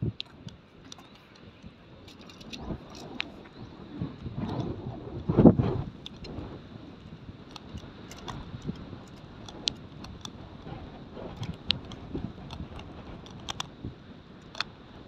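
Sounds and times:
tent poles clicking and clinking: 0.2s - 3.4s, 7.5s - 10.4s, 11.3s - 13.7s.

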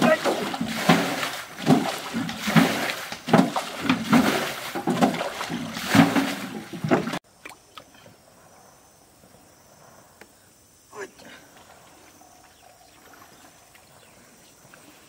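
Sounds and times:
water splashing onto bank: 0.0s - 7.9s.

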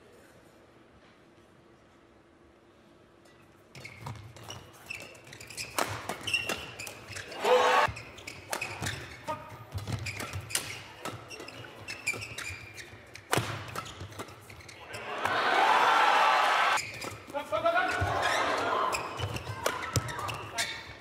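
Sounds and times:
shoes squeaking on court: 3.7s - 15.1s, 16.7s - 17.3s, 17.9s - 21.0s
rackets hitting shuttlecock: 5.1s - 14.6s, 19.2s - 20.7s
person shouting: 7.4s - 7.9s.

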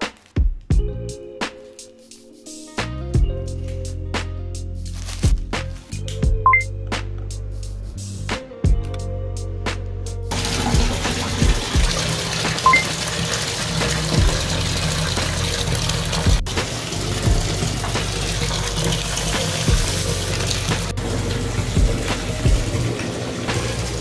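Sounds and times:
soft background music with beat: 0.0s - 24.0s
tap water pouring into bathtub: 10.3s - 24.0s.

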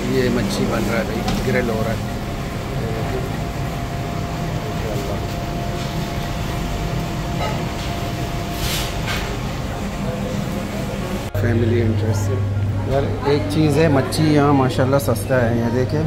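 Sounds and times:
ventilation fans droning: 0.0s - 16.0s.

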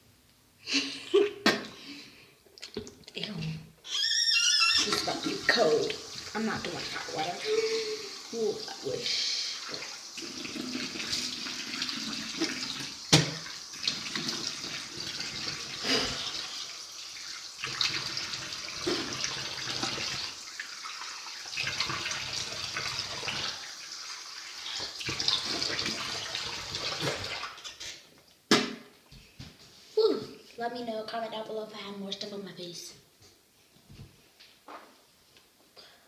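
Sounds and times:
sink tap running: 4.8s - 23.7s.

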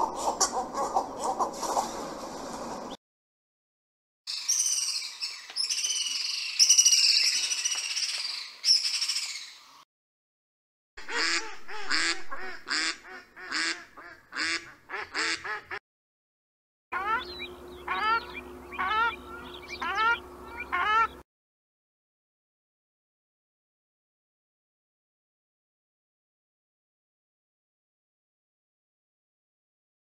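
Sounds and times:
duck rising calls: 11.0s - 15.4s, 17.0s - 21.2s
ducks quacking: 11.0s - 15.8s, 17.0s - 21.2s.

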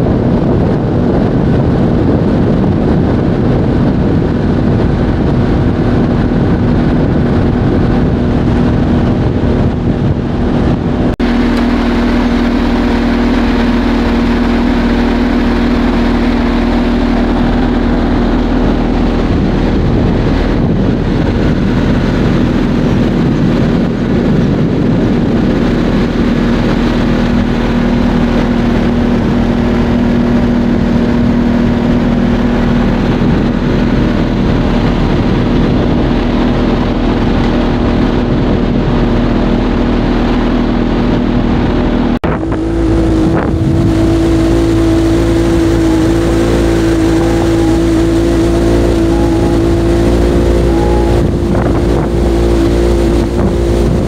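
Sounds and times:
rush of wind and water: 0.0s - 54.0s
speedboat engine running: 0.0s - 54.0s.

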